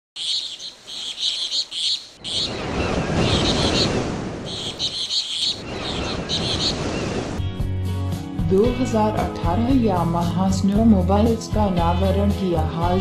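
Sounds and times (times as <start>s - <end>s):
bird-like chirping: 0.2s - 7.4s.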